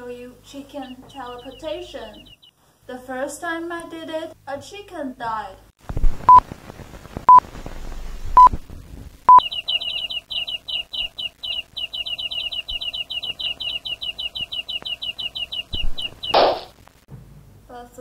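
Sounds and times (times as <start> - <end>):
faint hum: 0.0 - 18.0
chicks cheeping: 0.4 - 2.5, 9.3 - 16.8
short electronic beeps: 9.3 - 9.6.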